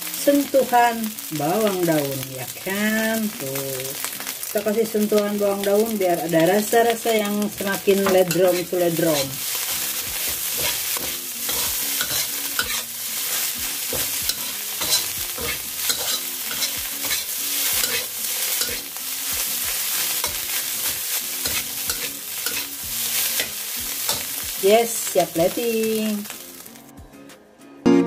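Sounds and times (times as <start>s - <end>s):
fried rice sizzling in a wok: 0.0s - 26.9s
metal spatula scraping and tapping pan: 7.2s - 12.9s, 13.9s - 18.9s, 20.2s - 24.4s.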